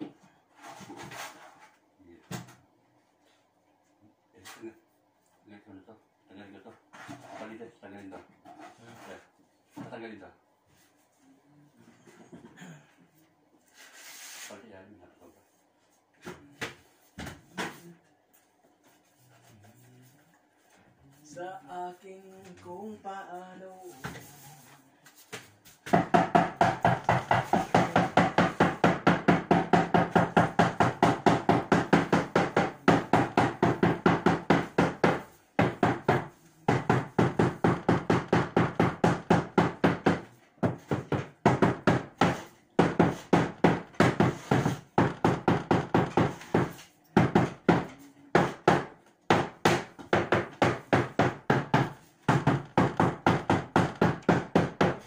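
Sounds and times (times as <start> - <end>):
hand tool scraping ceiling: 42.0 - 46.9.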